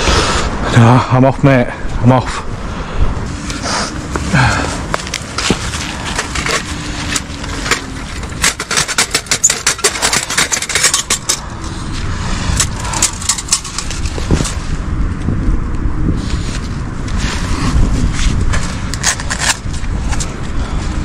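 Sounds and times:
camping gear rustling on leaves: 3.2 - 14.9.

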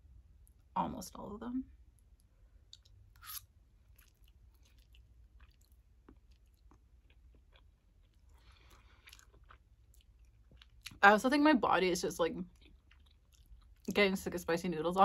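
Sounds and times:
soft chewing: 1.9 - 11.0, 12.4 - 13.9.

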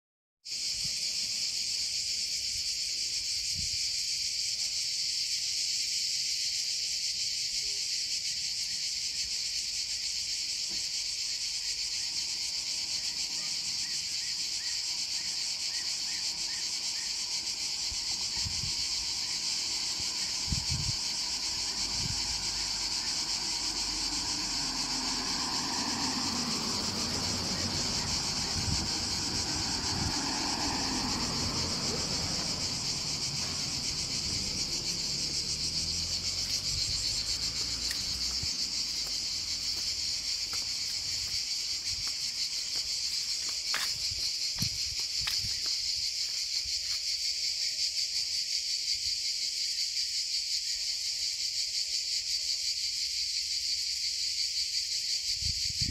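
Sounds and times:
high-pitched insect buzzing: 32.4 - 46.0.

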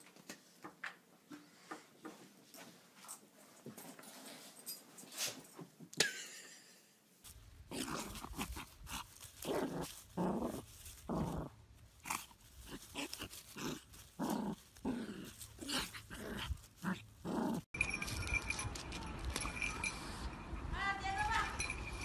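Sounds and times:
scuffling in grass: 7.3 - 18.3
small dog growling: 7.7 - 17.7.

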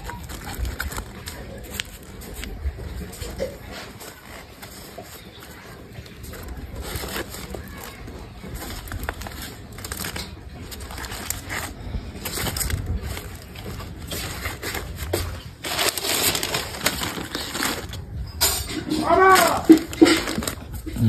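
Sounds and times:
dry leaves crinkling: 0.0 - 21.0.

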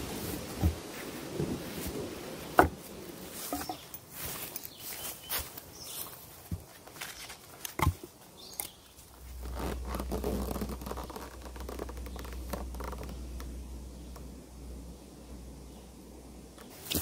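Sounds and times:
rustling in dry leaves: 0.0 - 14.2
low rumble: 9.1 - 16.7.

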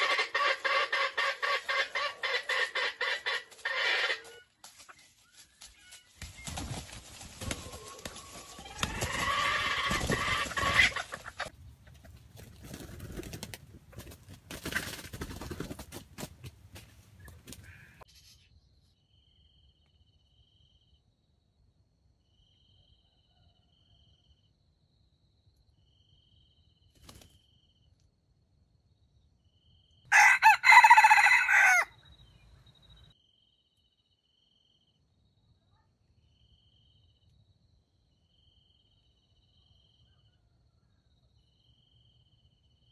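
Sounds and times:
rooster crowing: 30.1 - 32.0.

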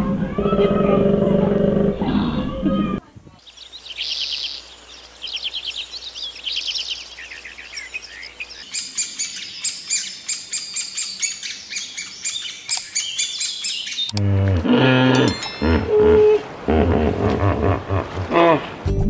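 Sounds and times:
bird song of high notes: 3.4 - 14.2
birds chirping in trills: 3.4 - 14.2.

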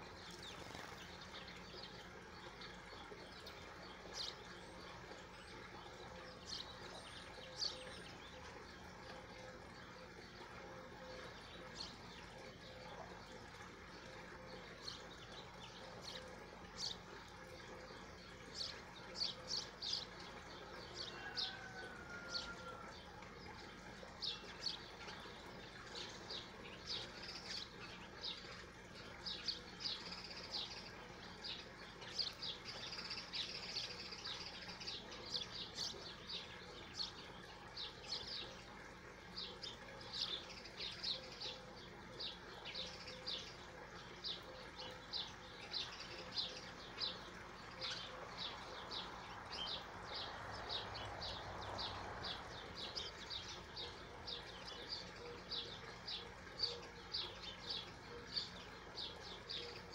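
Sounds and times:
faint steady hum: 0.0 - 59.9
small birds chirping: 23.4 - 38.7, 39.3 - 59.9.

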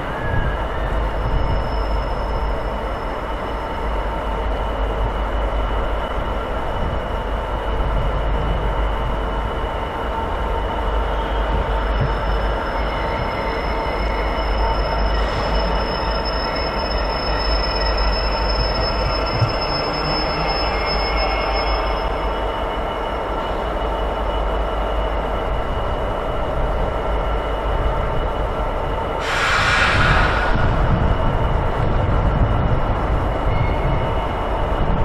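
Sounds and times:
high wheel squeal: 0.0 - 4.1, 11.1 - 23.0.

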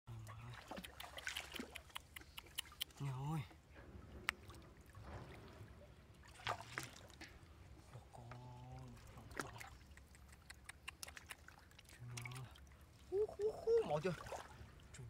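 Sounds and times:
water splashing and trickling: 0.1 - 15.0
sharp clicks and knocks: 3.8 - 5.5.

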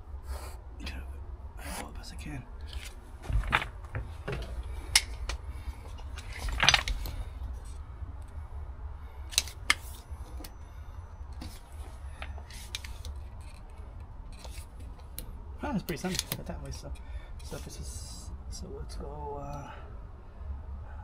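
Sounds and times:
low steady rumble: 0.0 - 21.0
tape measure metallic clicks: 9.3 - 10.6.

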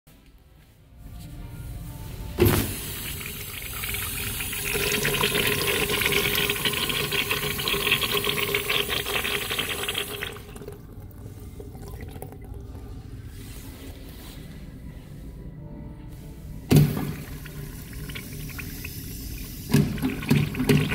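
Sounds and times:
water rushing into urinal: 2.5 - 12.7, 16.7 - 20.9
flush valve knock: 19.6 - 20.9.

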